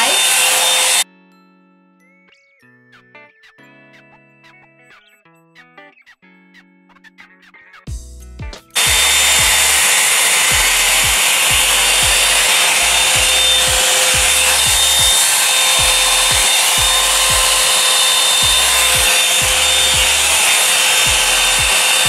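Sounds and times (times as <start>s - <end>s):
hot air brush blowing: 0.0s - 1.0s, 8.8s - 22.0s
background music with kick drum: 7.9s - 22.0s.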